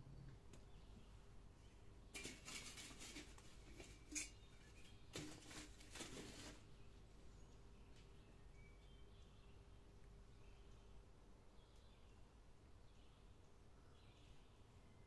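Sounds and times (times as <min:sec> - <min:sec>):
metal scraping on charcoal: 0:02.2 - 0:04.5.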